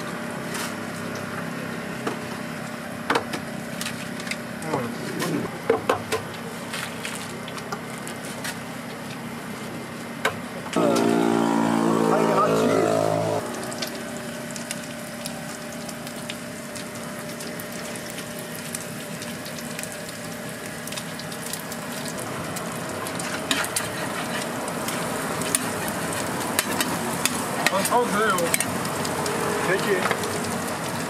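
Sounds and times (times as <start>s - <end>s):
egg and cabbage sizzling on griddle: 13.1s - 31.0s.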